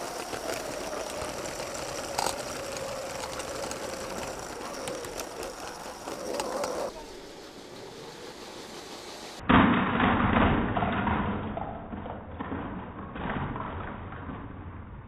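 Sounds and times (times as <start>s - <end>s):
plastic pieces clattering: 0.0s - 6.9s
toy train running on plastic track: 0.0s - 9.4s
toy trains crashing: 0.0s - 11.4s.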